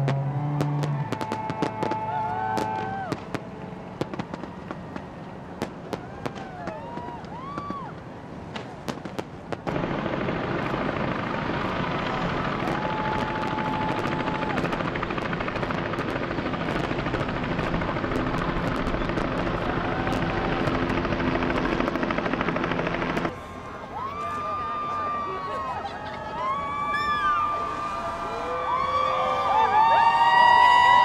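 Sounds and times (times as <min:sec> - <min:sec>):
mechanical rushing noise with hum: 0:09.2 - 0:23.3.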